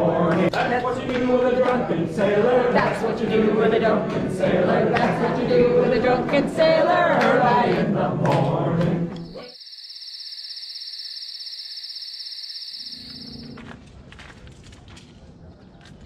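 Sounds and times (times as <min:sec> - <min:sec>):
group singing: 0:00.0 - 0:09.5
high insect trill: 0:09.2 - 0:13.6.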